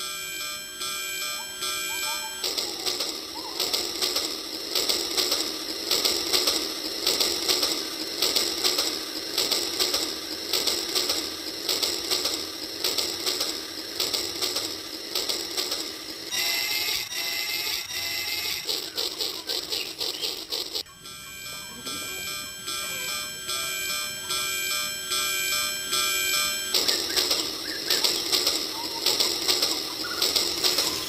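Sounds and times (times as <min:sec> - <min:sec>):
electronic tone pattern: 0:00.0 - 0:04.1, 0:17.1 - 0:31.0
toy train motor clicking and whirring: 0:00.0 - 0:31.0.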